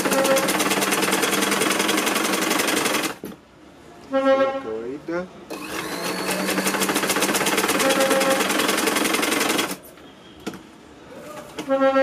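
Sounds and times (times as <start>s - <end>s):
sewing machine stitching: 0.0s - 3.2s, 5.5s - 9.8s.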